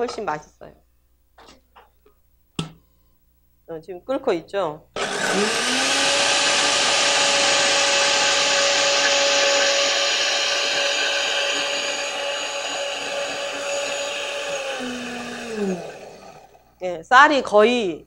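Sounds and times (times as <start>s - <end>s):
blender motor winding down: 5.0s - 16.7s
blender whirling liquid: 5.0s - 16.7s.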